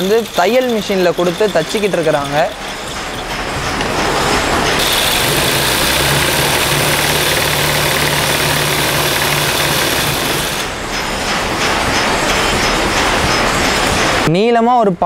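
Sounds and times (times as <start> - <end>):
sewing machine humming: 4.8 - 10.8.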